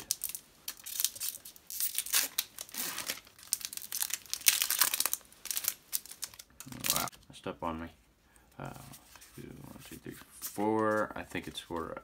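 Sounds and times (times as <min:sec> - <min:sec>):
foil wrapper crinkling and ripping: 0:00.0 - 0:07.1.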